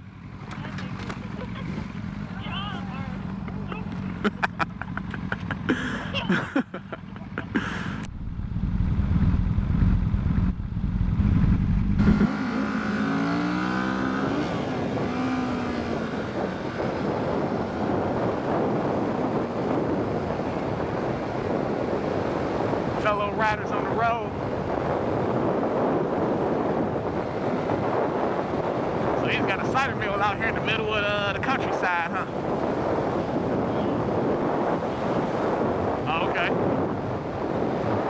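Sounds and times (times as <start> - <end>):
motorcycle engine accelerating: 0.0 - 23.7
wind rush on microphone: 7.4 - 38.0.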